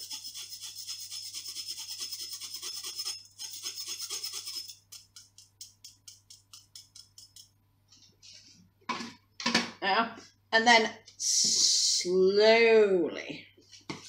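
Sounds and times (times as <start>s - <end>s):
spoon scraping wire-mesh sieve: 0.0s - 7.4s.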